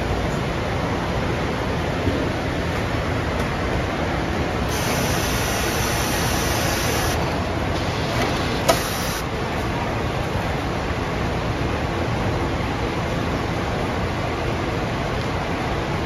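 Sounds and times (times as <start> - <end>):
steady machinery hum: 0.0 - 16.0
hiss of air: 4.7 - 7.2, 7.8 - 9.3.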